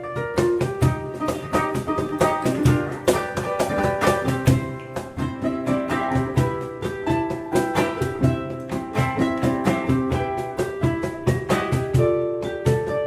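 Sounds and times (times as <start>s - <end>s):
cajon played with hands: 0.0s - 13.0s
ukulele picking a melody: 0.0s - 13.0s.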